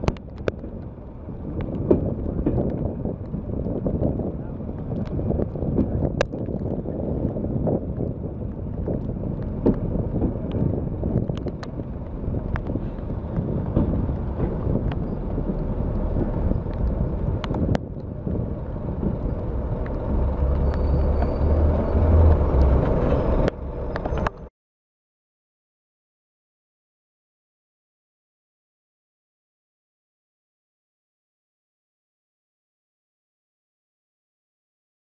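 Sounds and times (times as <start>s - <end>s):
diesel railcar rumble: 0.0s - 24.5s.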